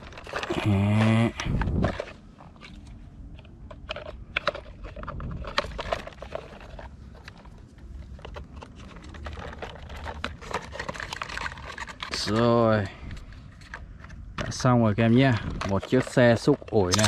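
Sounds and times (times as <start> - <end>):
plastic toy parts clicking: 15.6 - 17.0.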